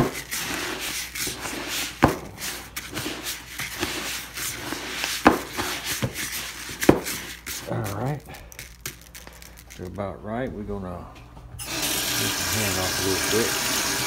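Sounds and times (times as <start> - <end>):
feed scraping against bucket: 0.0 - 8.2.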